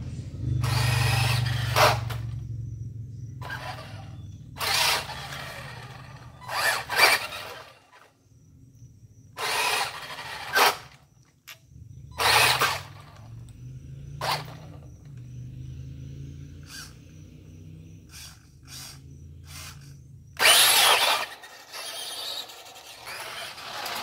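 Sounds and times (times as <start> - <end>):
low steady hum: 0.0 - 20.5
rc car motor whirring: 0.6 - 2.4, 3.4 - 8.2, 9.4 - 11.0, 12.2 - 13.5, 14.2 - 15.3, 16.6 - 17.2, 18.0 - 24.0
tyres scrabbling on concrete: 20.4 - 24.0.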